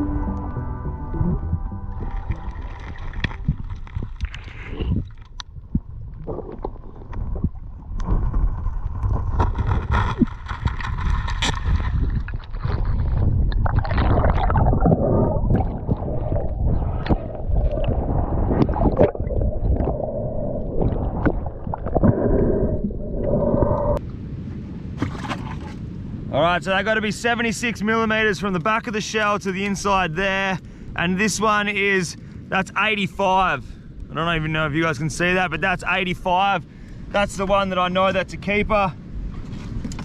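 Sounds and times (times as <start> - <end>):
deep rumble: 0.0 - 24.3
water gurgling and sloshing: 0.0 - 26.1.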